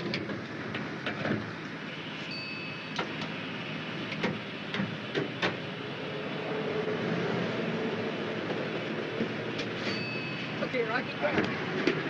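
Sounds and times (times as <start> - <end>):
short high ding: 2.3 - 3.0, 9.9 - 10.5
sharp clicks and knocks: 4.1 - 5.6.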